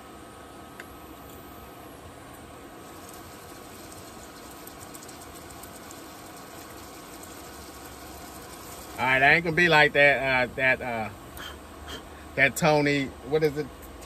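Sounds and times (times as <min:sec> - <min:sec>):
low mechanical hum: 0:00.0 - 0:14.0
seasoning shaken from a canister: 0:02.8 - 0:09.5.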